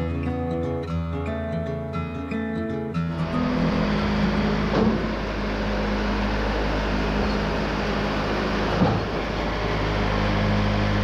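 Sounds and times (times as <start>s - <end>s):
sawmill engine running: 3.1s - 11.0s.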